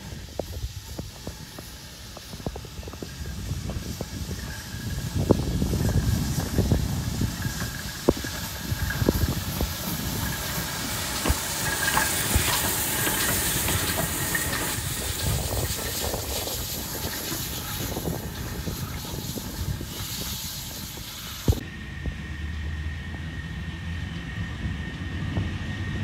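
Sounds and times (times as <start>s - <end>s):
steam hissing: 0.0s - 22.0s
low rumble of steam engine: 0.0s - 26.0s.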